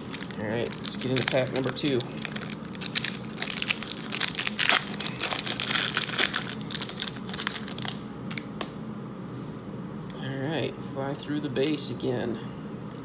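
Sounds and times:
wrapper tearing and crinkling: 0:00.0 - 0:08.4.

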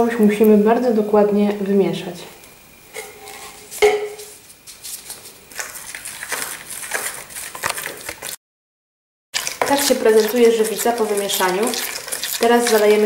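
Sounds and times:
stick scraping plastic bowl: 0:04.8 - 0:08.4, 0:09.4 - 0:13.0.

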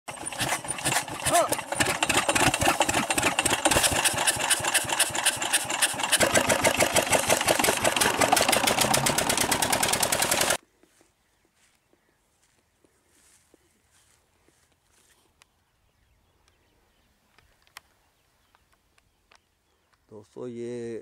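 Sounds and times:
diesel engine chugging: 0:00.1 - 0:10.6.

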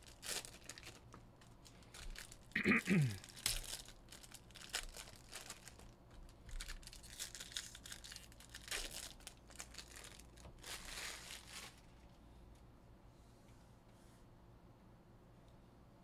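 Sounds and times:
foil wrappers tearing and crinkling: 0:00.0 - 0:12.0.

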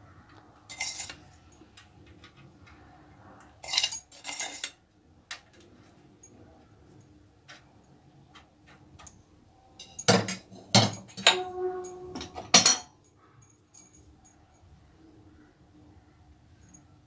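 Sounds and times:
metal spoon clinking on steel pot: 0:00.7 - 0:01.2, 0:03.6 - 0:04.8, 0:09.8 - 0:12.9.

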